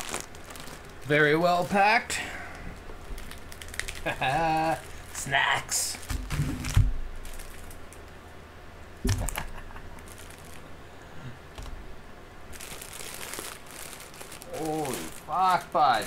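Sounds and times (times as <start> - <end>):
packaging rustling: 0.0 - 1.8, 2.7 - 8.2, 9.1 - 10.7, 12.5 - 16.0.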